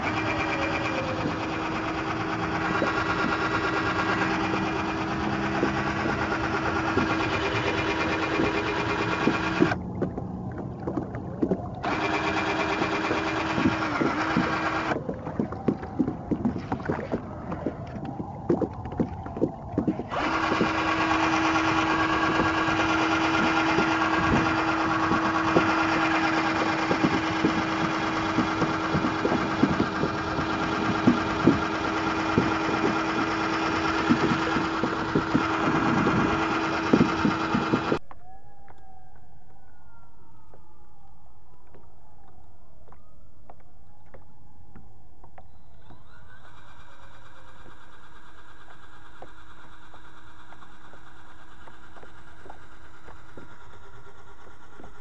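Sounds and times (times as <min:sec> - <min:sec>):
cordless drill motor whine: 0:00.0 - 0:09.8, 0:11.8 - 0:15.0, 0:20.0 - 0:38.1.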